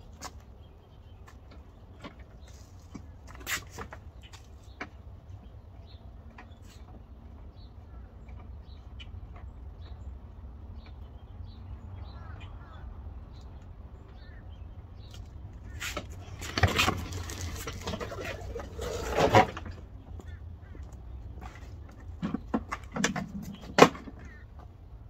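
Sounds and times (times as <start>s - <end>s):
cardboard rustling and clattering: 15.9s - 19.8s.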